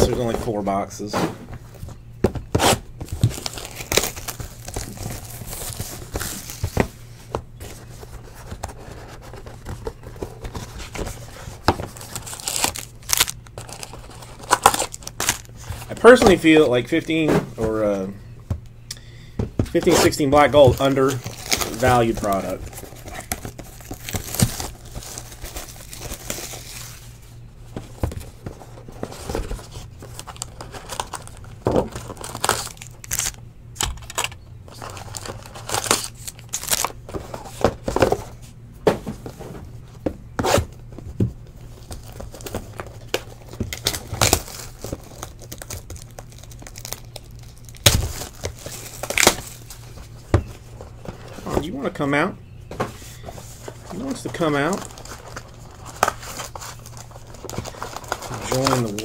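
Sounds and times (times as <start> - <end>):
plastic wrapping tearing and crinkling: 2.6 - 6.8, 10.6 - 16.3, 19.8 - 27.2, 29.6 - 37.5, 41.8 - 50.0, 53.7 - 59.0.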